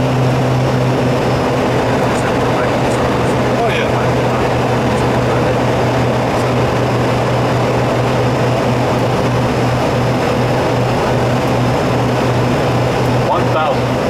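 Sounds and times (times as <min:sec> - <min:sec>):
low aircraft hum: 0:00.0 - 0:14.0.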